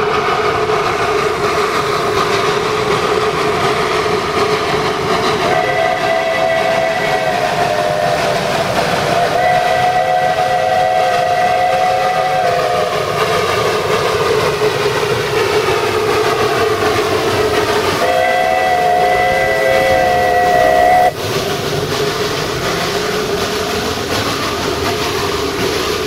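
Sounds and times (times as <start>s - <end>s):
steam locomotive whistle blasts: 5.4s - 8.4s, 9.1s - 12.9s, 18.0s - 21.2s.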